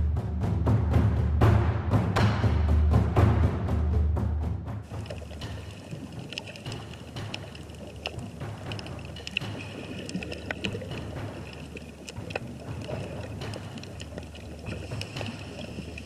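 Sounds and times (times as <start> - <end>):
muffled underwater rumble: 4.9 - 16.0
sharp clicks and crackles: 4.9 - 16.0.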